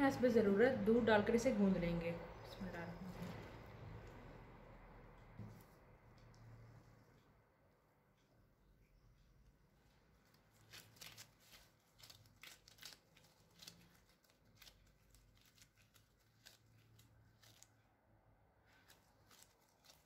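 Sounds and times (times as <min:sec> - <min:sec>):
gloved hands kneading dough: 0:09.3 - 0:20.0.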